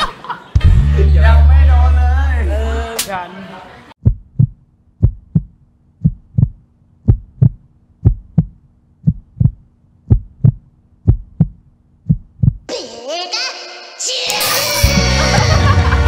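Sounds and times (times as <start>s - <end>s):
heartbeat double thump: 0.6s - 1.0s, 4.0s - 12.7s.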